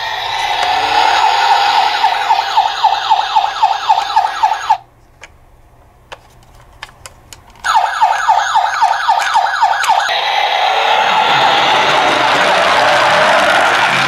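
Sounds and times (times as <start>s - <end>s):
toy siren yelping: 0.0s - 4.8s, 7.7s - 13.0s.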